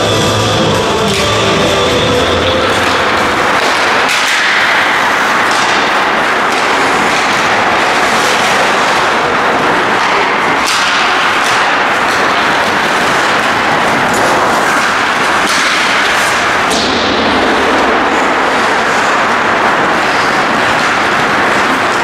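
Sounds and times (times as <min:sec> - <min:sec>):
rock music: 0:00.0 - 0:03.5
hockey sticks and pucks knocking: 0:00.0 - 0:22.0
skates hissing on ice: 0:02.8 - 0:22.0.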